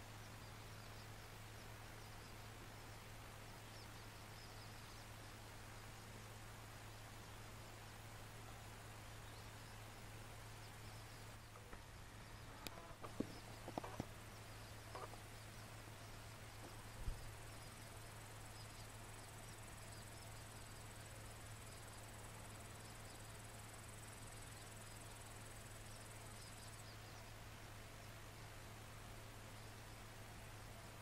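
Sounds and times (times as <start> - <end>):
insect trill: 10.6 - 27.2.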